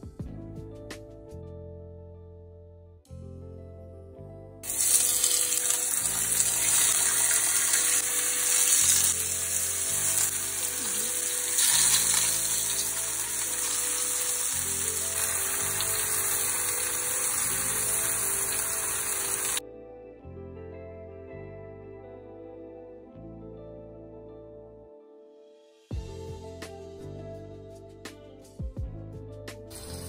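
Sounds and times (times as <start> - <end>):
soft background music: 0.0 - 30.0
tomatoes sizzling in frying pan: 4.6 - 19.6.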